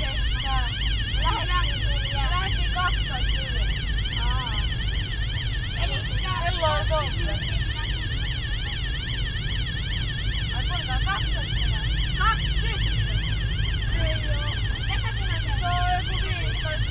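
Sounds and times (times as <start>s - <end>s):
children chattering: 0.0s - 4.8s, 10.5s - 16.9s
siren wailing: 0.0s - 16.9s.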